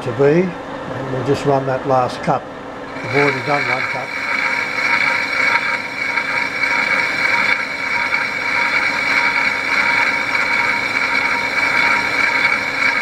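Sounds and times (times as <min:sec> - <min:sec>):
high machine whine: 0:02.8 - 0:13.0
metal lathe running: 0:02.9 - 0:13.0.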